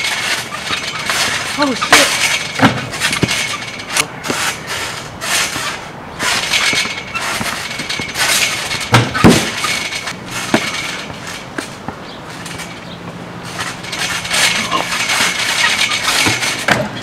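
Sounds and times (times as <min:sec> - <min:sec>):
trampoline springs creaking: 0:00.0 - 0:17.0
heavy thump: 0:00.1 - 0:12.7.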